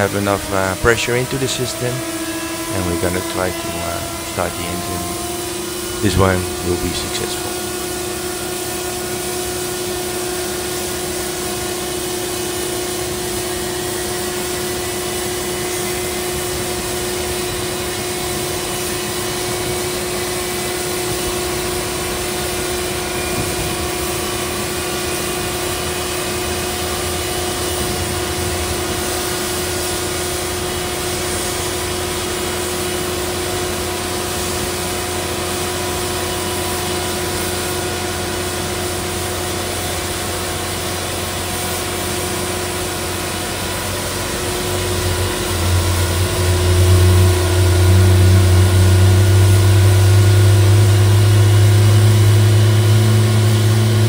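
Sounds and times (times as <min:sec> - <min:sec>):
jet engine turbine whine: 0:00.0 - 0:54.0
low rumble: 0:44.1 - 0:54.0.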